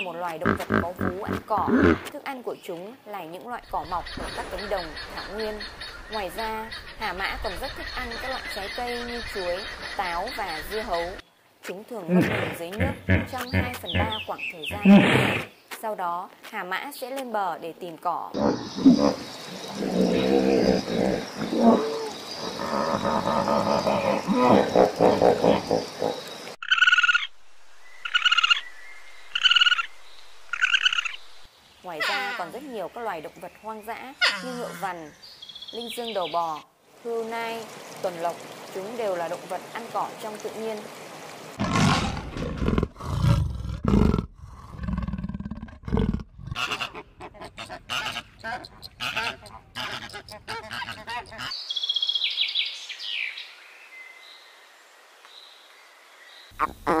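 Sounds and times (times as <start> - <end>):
hippopotamus grunts and honks: 0.0 - 2.1, 12.0 - 15.5, 18.4 - 26.3
leopard roaring and growling: 18.4 - 26.3, 41.6 - 47.0
higher-pitched animal calls: 18.4 - 27.3.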